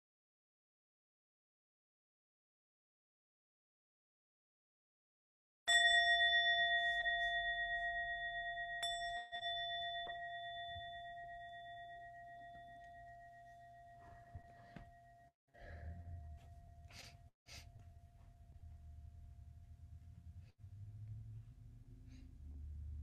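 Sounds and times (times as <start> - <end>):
singing bowl ringing: 5.7 - 15.4.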